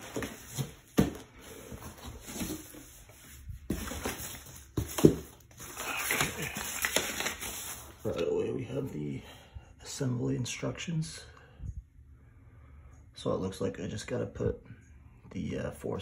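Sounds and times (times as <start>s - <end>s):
cardboard packing handled: 0.0s - 8.2s
paper rustling: 0.0s - 8.2s.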